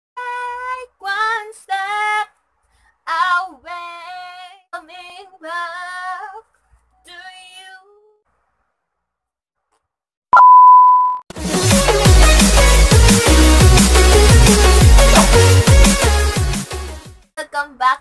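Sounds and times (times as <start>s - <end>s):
woman singing a cappella: 0.2s - 2.4s, 3.0s - 8.2s.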